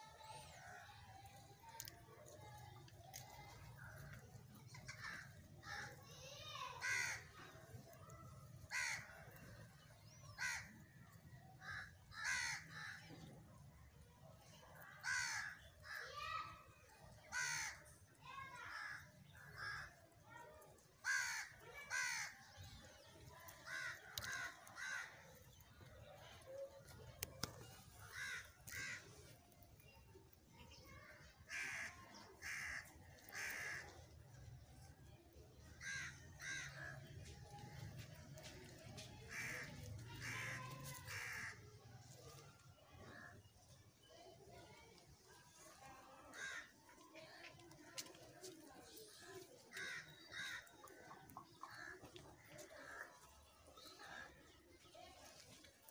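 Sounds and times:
crows cawing: 4.7 - 6.0, 6.7 - 7.4, 8.7 - 9.2, 10.2 - 10.8, 11.6 - 13.1, 15.0 - 16.3, 17.3 - 17.8, 18.5 - 20.0, 21.0 - 22.7, 23.6 - 25.6, 28.0 - 29.1, 31.0 - 34.0, 35.8 - 37.1, 39.3 - 41.7, 46.3 - 46.7, 49.7 - 52.0.

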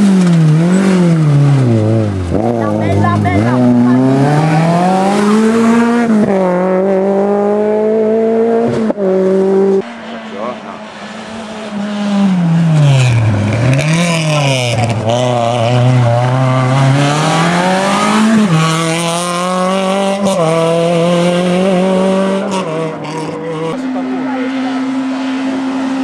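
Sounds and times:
car engine revving past: 0.0 - 26.0.

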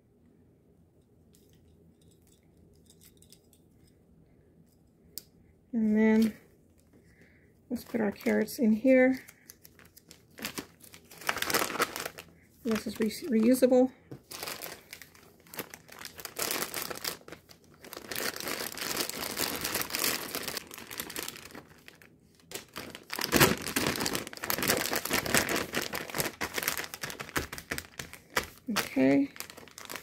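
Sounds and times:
plastic bags crinkling: 5.8 - 6.4, 7.7 - 30.0.

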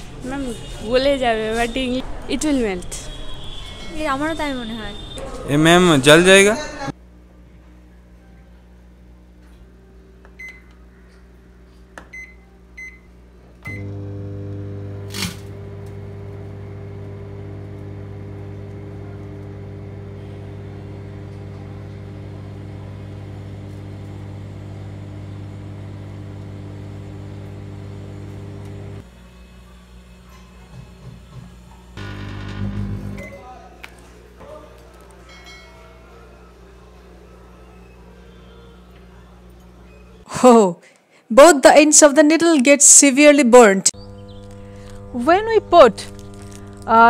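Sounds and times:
microwave humming: 12.0 - 30.3, 31.9 - 33.6, 43.9 - 47.0
microwave keypad beeping: 12.1 - 13.0.

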